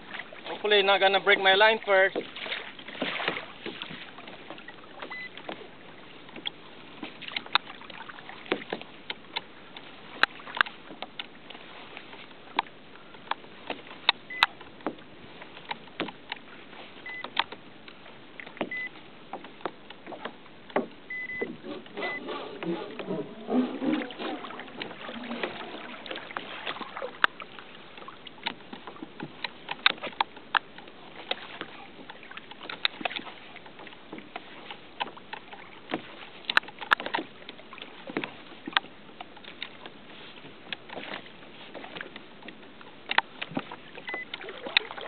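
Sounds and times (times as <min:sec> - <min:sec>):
water lapping against kayak hull: 0:00.0 - 0:45.0.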